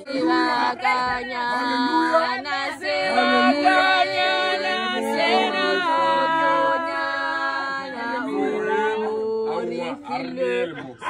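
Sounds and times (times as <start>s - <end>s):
voices singing together: 0.0s - 11.0s.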